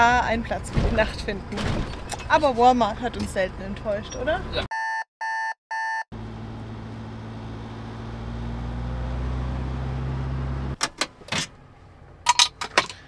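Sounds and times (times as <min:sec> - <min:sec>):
diesel truck engine running: 0:06.1 - 0:10.8.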